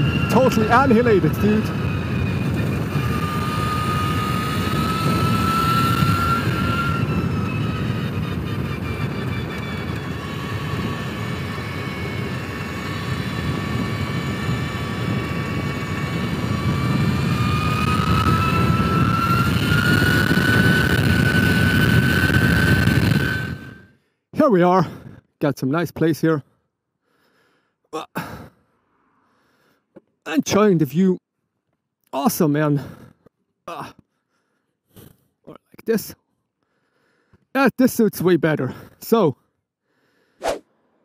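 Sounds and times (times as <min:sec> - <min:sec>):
electric motorcycle whine: 0:00.0 - 0:24.0
wind and tyre noise: 0:00.0 - 0:26.4.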